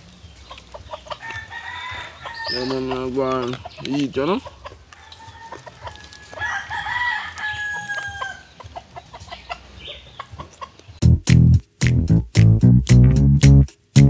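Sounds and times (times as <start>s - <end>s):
rooster crowing: 1.2s - 2.9s, 4.9s - 8.6s
loud music: 11.0s - 14.0s.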